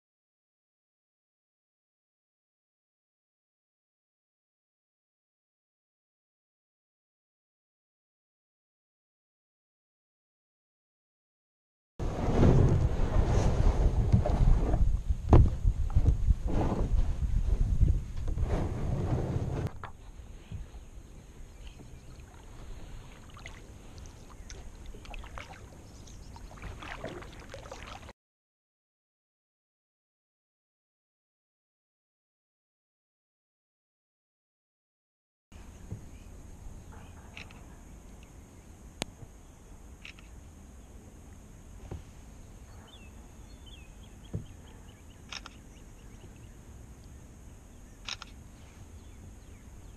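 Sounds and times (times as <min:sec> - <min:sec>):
low rumble: 0:12.0 - 0:20.4
high insect hum: 0:19.9 - 0:28.1, 0:35.6 - 0:49.9
birds chirping: 0:20.0 - 0:28.0, 0:42.4 - 0:49.9
paddle splashing in water: 0:21.6 - 0:28.1.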